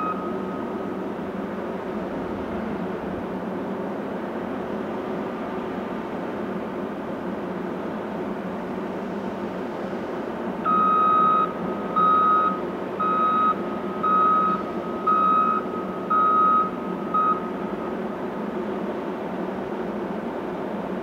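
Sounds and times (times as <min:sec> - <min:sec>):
reversing alarm beeping: 0:00.0 - 0:00.8, 0:10.6 - 0:17.5
low machinery drone: 0:00.0 - 0:21.0.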